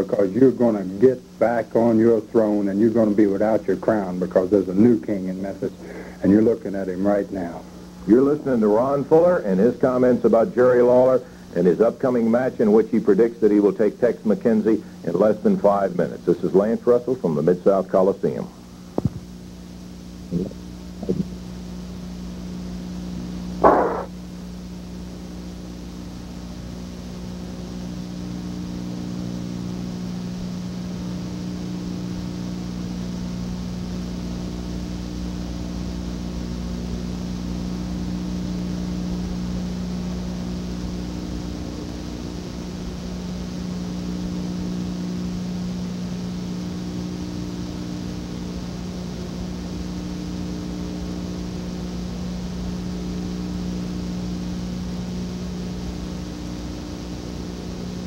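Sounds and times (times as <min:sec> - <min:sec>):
electrical hum with hiss: 0:00.0 - 0:58.0
short loud blip: 0:23.6 - 0:24.1.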